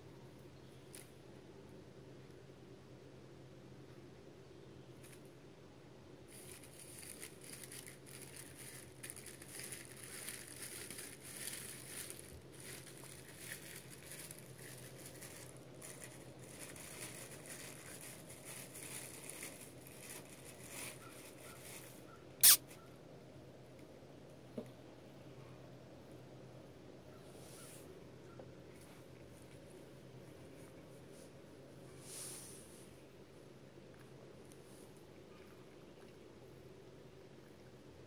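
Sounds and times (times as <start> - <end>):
puppy high squeak: 22.4 - 22.9.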